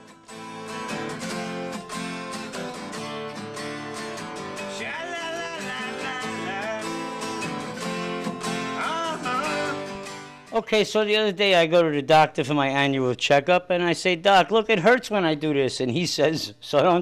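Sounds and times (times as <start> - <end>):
strummed acoustic guitar: 0.0 - 10.6.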